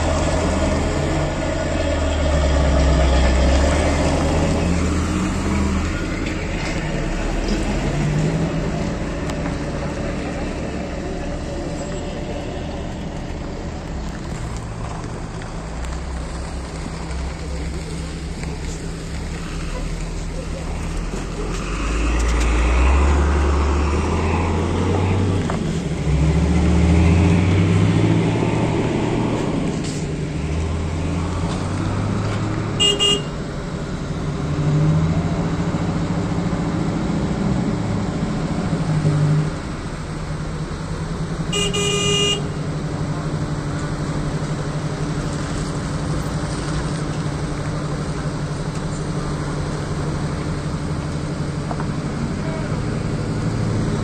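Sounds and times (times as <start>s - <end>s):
truck engine idling: 0.0s - 21.6s
vehicle engines in traffic: 0.0s - 54.0s
car horn: 32.8s - 33.4s, 41.5s - 42.6s.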